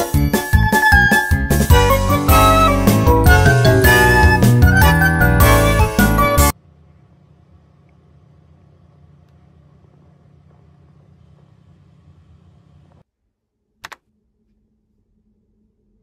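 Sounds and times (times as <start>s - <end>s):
low background rumble: 6.5s - 16.0s.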